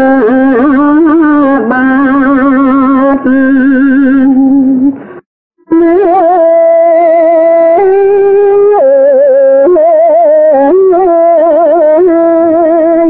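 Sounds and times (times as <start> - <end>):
elderly man chanting: 0.0 - 4.4.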